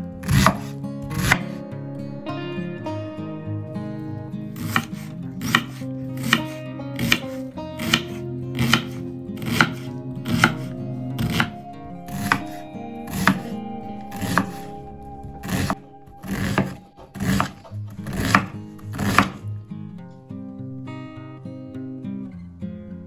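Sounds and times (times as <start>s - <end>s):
background music: 0.0s - 22.6s
knife chopping on wooden board: 0.2s - 1.6s, 4.6s - 11.5s, 15.4s - 19.4s.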